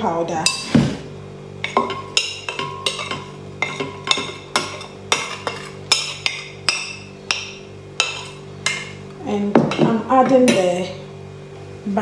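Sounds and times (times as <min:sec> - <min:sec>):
steady low hum: 0:00.0 - 0:12.0
spoon clinking on a plate: 0:01.6 - 0:09.0.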